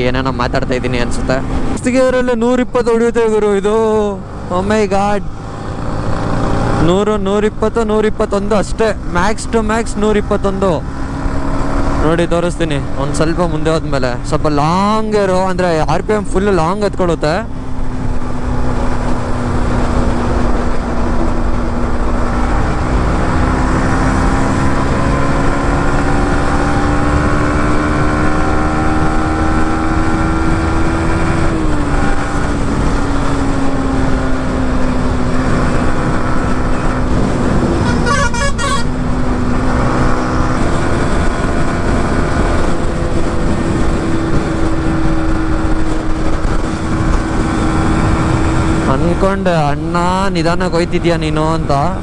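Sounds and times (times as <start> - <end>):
motorcycle engine at speed: 0.0 - 52.0
wind noise on microphone: 17.6 - 48.9
vehicle horn: 37.8 - 39.0.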